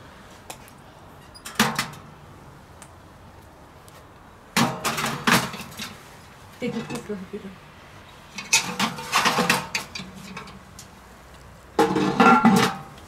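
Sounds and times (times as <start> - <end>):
cast iron pot clanking on metal: 8.4 - 10.6, 11.8 - 13.0.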